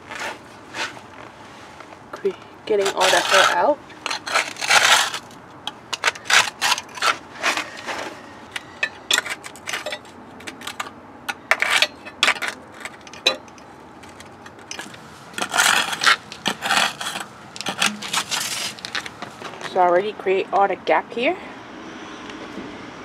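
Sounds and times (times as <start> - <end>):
metal scraper scraping concrete joint: 2.7 - 19.2.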